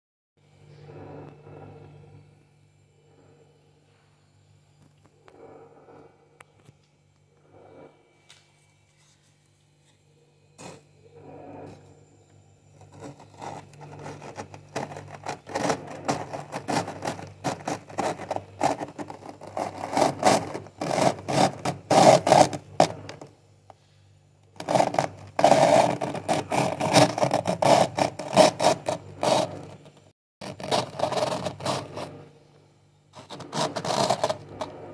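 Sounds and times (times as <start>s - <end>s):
plastic scraping frost: 12.8s - 23.3s, 24.6s - 32.3s, 33.1s - 34.9s.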